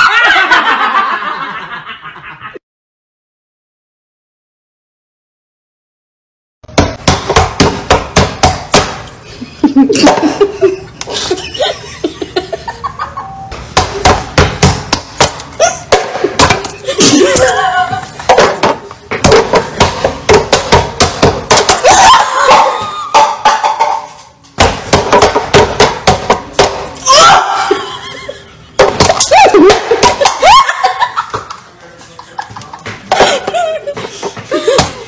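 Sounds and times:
laughter: 0.0 - 2.6, 9.4 - 13.5, 27.6 - 35.0.

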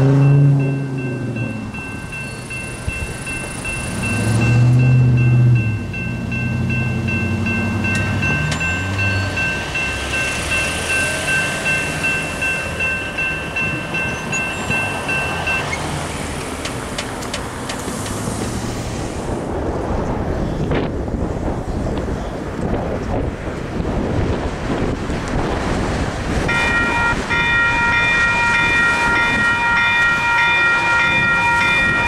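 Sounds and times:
crossing warning bell ringing: 0.0 - 17.0, 26.4 - 32.0
train rumble: 0.0 - 32.0.

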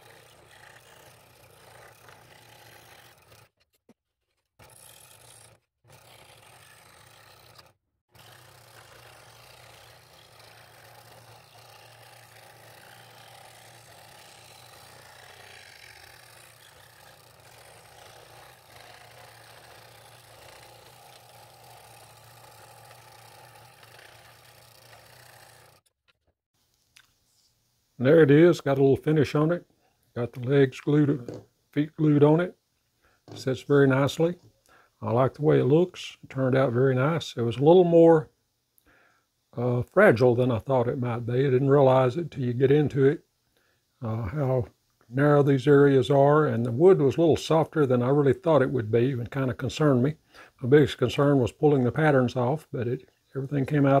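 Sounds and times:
scroll saw cutting wood: 0.0 - 26.0.

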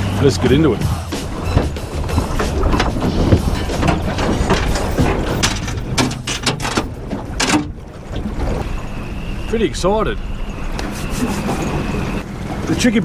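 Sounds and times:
low rushing noise: 0.0 - 12.7
anchor chain rattling: 0.9 - 9.5
sharp metal clanks: 1.2 - 7.8.

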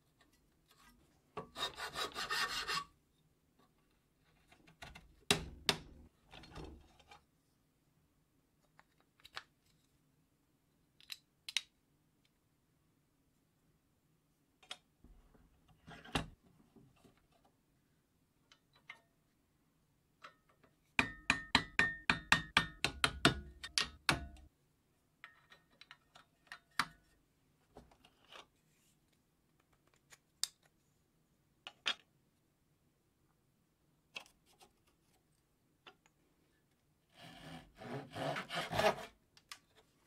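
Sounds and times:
hammer striking chisel: 21.0 - 24.4.

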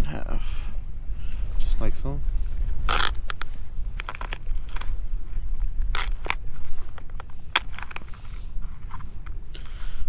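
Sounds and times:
crab shell cracking: 2.8 - 5.0, 5.7 - 8.2.

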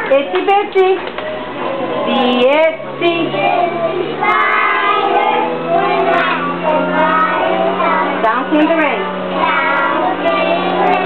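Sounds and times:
steady low tone: 1.4 - 11.0
children singing together: 2.9 - 8.3, 9.0 - 11.0.

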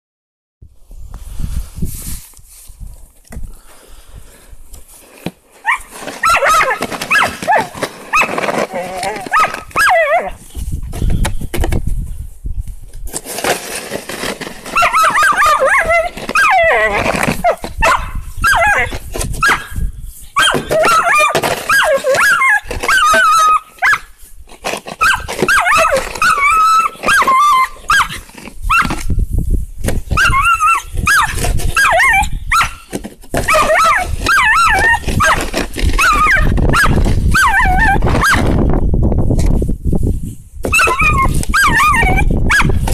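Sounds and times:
plastic shovel scraping snow: 1.2 - 2.9, 3.7 - 12.0, 12.9 - 38.7, 39.3 - 42.9
dog barking yipping and whining: 5.6 - 10.4, 14.7 - 19.8, 20.4 - 24.1, 25.0 - 29.0, 30.1 - 38.5, 40.7 - 42.9.

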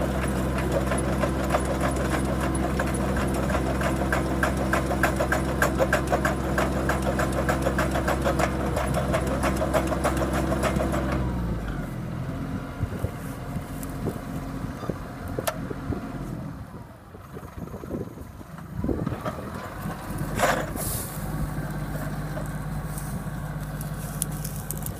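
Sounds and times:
knocks and clatter: 0.0 - 11.3
tractor engine running: 0.0 - 24.9.

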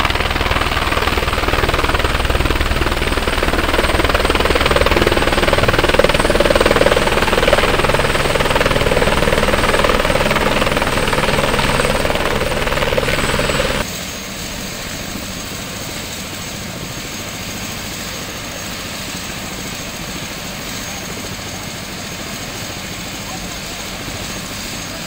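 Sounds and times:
helicopter engine and rotor: 0.0 - 25.0.

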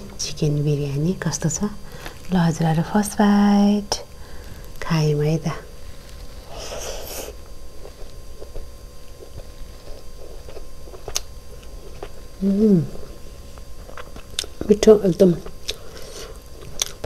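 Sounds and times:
person humming mm: 6.4 - 7.4, 12.4 - 13.2
chewing mouth sounds: 7.8 - 12.3, 13.8 - 14.7, 15.4 - 17.0.

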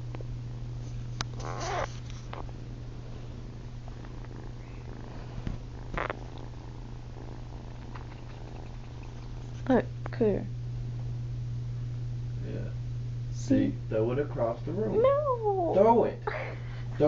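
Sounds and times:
kitten purring: 0.8 - 10.1.

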